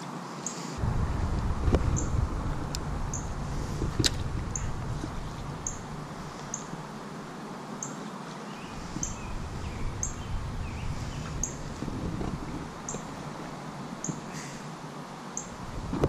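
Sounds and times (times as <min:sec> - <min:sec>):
low steady rumble: 0:00.8 - 0:07.5, 0:08.7 - 0:14.3, 0:15.5 - 0:16.0
faint bird calls: 0:04.5 - 0:07.0, 0:14.0 - 0:14.8.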